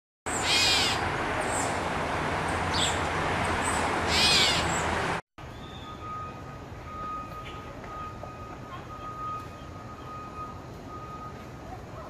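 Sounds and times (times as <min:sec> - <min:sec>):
catbird mewing calls: 0:00.4 - 0:01.0, 0:04.1 - 0:04.8.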